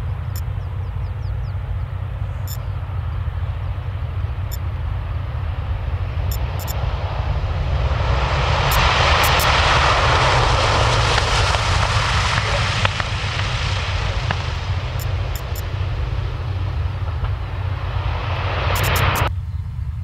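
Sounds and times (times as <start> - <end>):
propeller airliner landing: 0.0 - 20.0.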